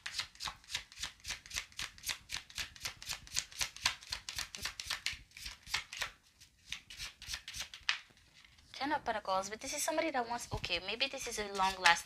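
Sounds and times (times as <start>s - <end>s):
cards being shuffled: 0.0s - 8.7s, 11.5s - 12.0s.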